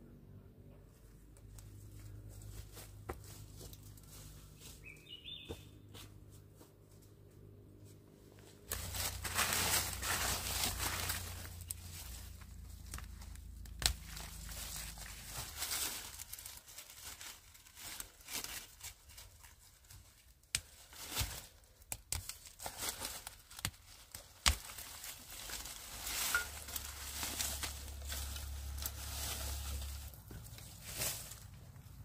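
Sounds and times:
rustling and tearing: 8.4 - 32.0.

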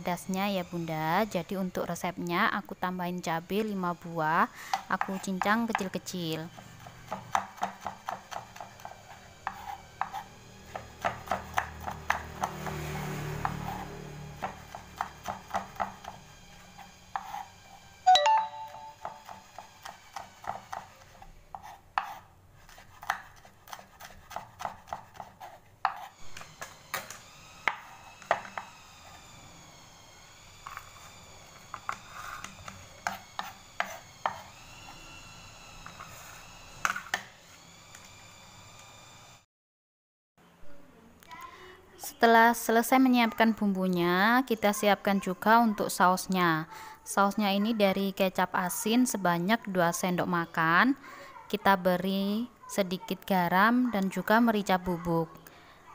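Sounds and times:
knife chopping on wooden board: 6.6 - 17.5, 18.9 - 28.7, 31.7 - 34.6.

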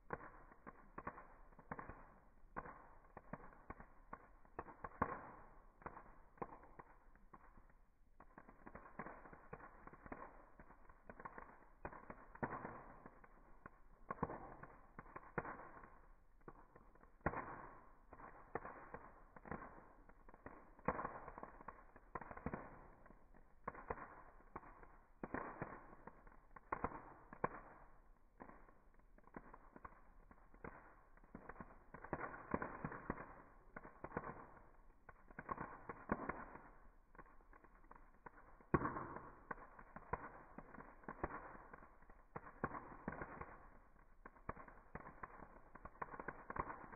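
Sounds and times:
campfire crackling and popping: 0.0 - 46.9.

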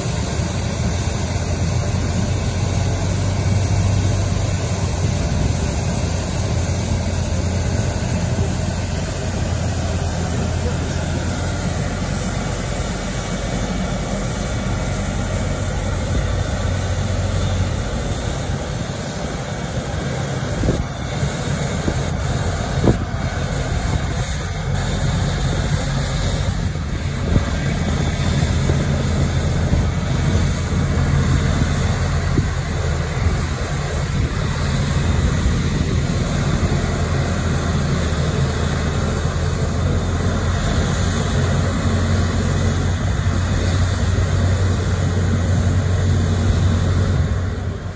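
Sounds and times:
tow tractor engine drone: 0.0 - 47.9.

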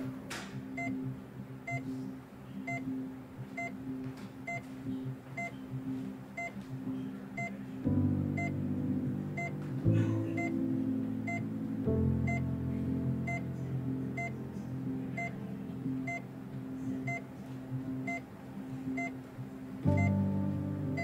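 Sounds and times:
soft background music: 0.0 - 21.0
hospital monitor beeping: 0.6 - 1.9, 2.6 - 6.6, 7.4 - 8.7, 9.3 - 9.6, 10.2 - 11.6, 12.2 - 12.6, 13.2 - 18.3, 18.9 - 20.3.

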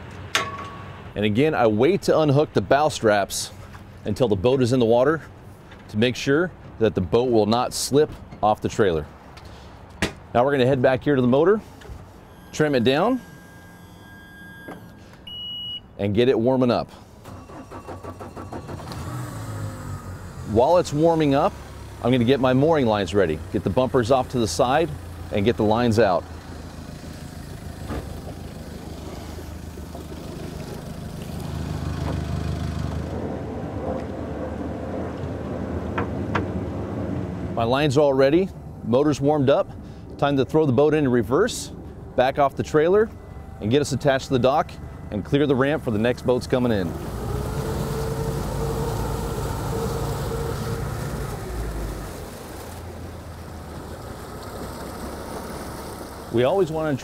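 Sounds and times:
outboard motor idling: 17.4 - 57.0.

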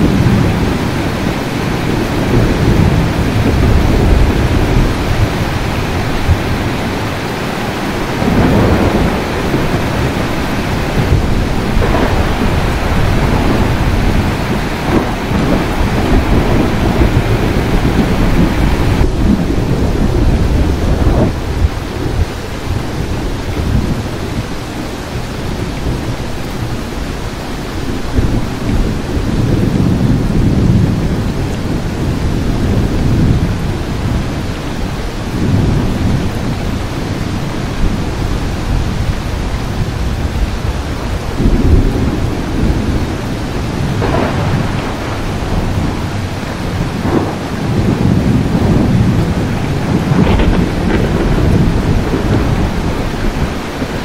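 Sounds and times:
heavy rain: 0.0 - 54.0
thunder rumbling: 0.0 - 54.0
sharp thunder cracks: 7.9 - 23.0, 41.2 - 54.0.

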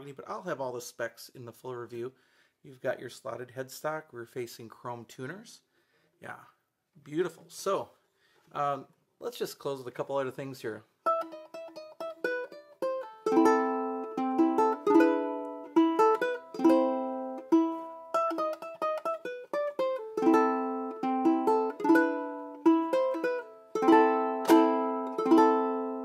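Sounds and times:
ukulele picked chords: 11.0 - 26.0.

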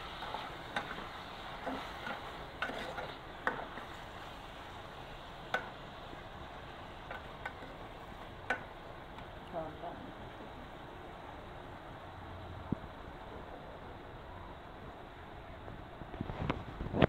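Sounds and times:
ladle stirring fish in pan: 0.0 - 9.3
faint sizzle: 0.0 - 17.0.

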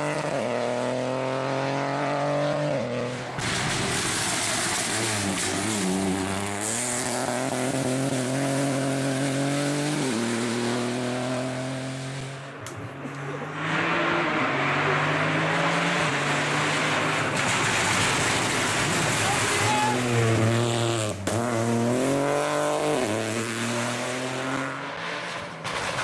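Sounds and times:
rally car engine revving: 0.0 - 26.0.

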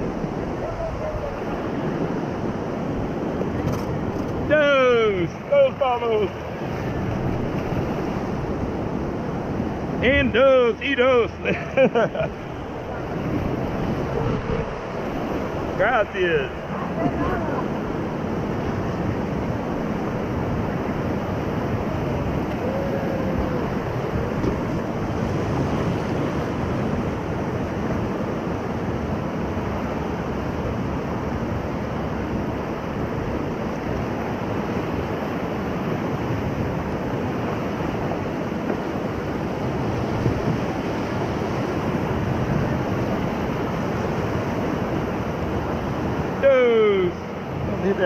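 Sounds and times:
river rapids rushing: 0.0 - 48.0
wind buffeting microphone: 0.0 - 48.0.

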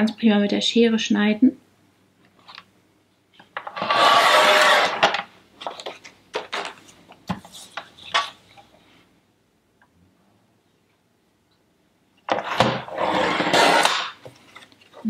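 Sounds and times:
paper trimmer cutting stroke: 3.8 - 5.0.

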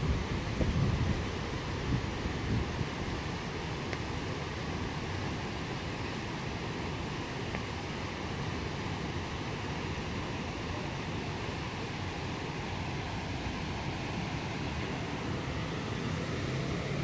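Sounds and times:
floodwater rushing: 0.0 - 17.0.

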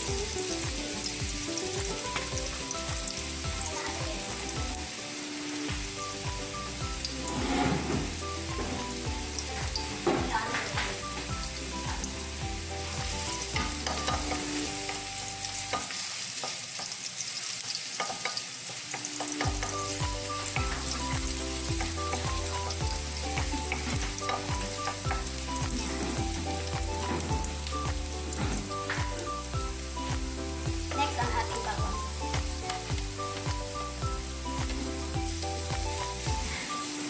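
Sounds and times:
onions sizzling in hot oil: 0.0 - 37.0
wooden spatula scraping a pan: 7.2 - 9.0, 21.8 - 27.5.

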